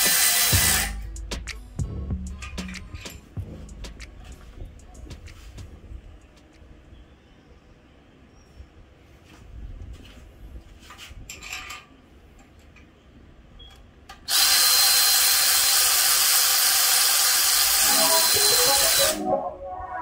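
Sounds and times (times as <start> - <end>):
cordless power tool running: 14.3 - 19.1.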